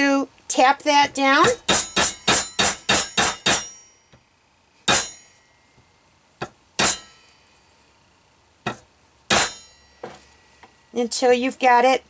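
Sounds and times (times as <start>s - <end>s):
hammer tapping metal: 1.4s - 4.2s, 4.9s - 5.8s, 6.4s - 7.4s, 8.6s - 10.7s.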